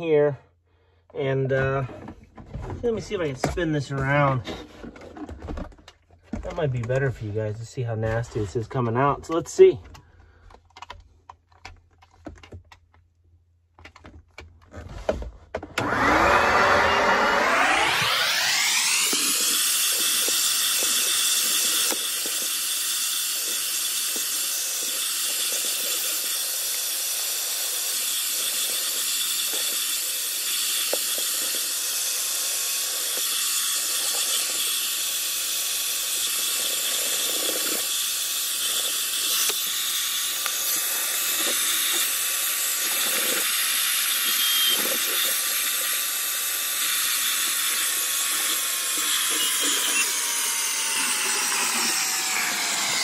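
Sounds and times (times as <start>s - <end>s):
spot cleaner motor whine: 15.8s - 53.0s
hissing suction: 29.6s - 53.0s.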